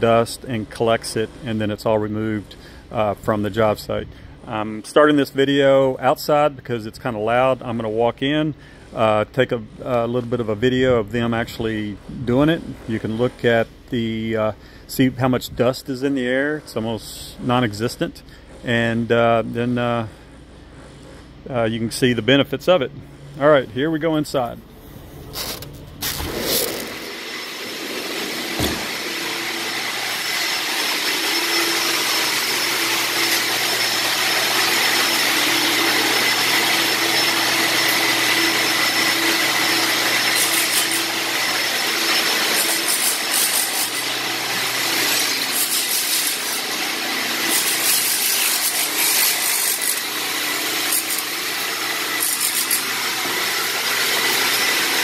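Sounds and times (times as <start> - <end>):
vacuums whining: 0.0 - 55.0
power tools chipping tile: 26.0 - 55.0.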